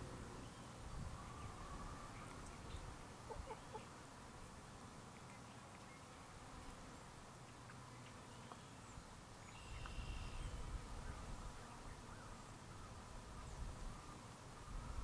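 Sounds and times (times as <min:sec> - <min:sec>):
faint short bird calls: 0:00.4 - 0:03.9, 0:09.5 - 0:11.2.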